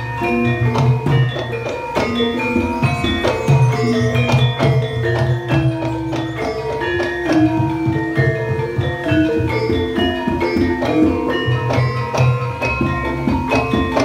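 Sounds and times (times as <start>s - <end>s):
metal-keyed gamelan melody: 0.0s - 14.0s
steady drumming: 0.0s - 14.0s.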